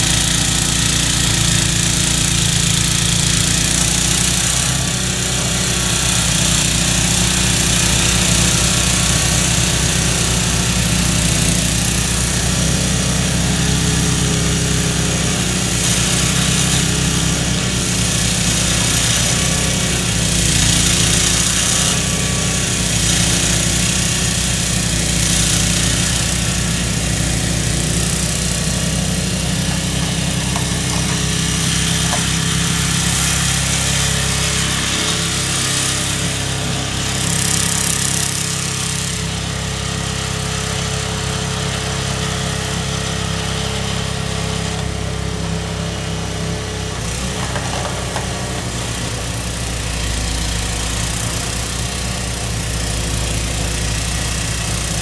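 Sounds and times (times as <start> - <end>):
auger throwing wet snow: 0.0 - 39.0
snowblower engine running: 0.0 - 55.0.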